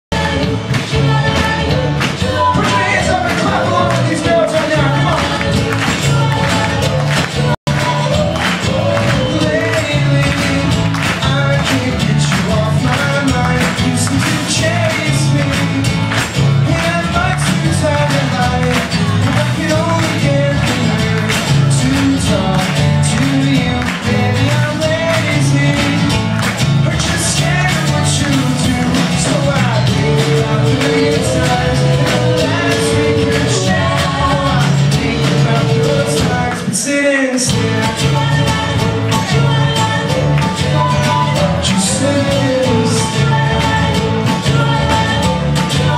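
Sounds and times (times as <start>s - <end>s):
electric guitar: 0.1s - 45.9s
lead and harmony vocals: 0.1s - 45.9s
live band playing: 0.1s - 45.9s.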